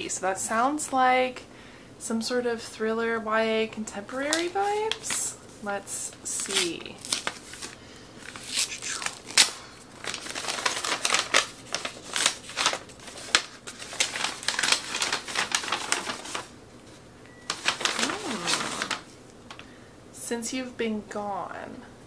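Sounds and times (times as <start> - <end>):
paper tearing and crumpling: 4.3 - 5.3, 6.3 - 16.5, 17.5 - 19.1.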